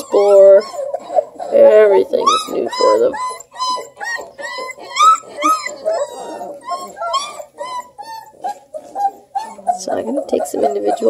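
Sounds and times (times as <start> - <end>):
puppies whining and yipping: 0.0 - 11.0.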